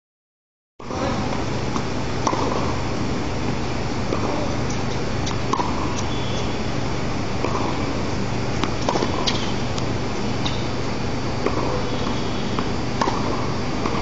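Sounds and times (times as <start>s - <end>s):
steady hiss and low hum: 0.8s - 14.0s
tennis balls struck by racquets: 0.9s - 6.8s, 7.4s - 10.7s, 11.4s - 14.0s.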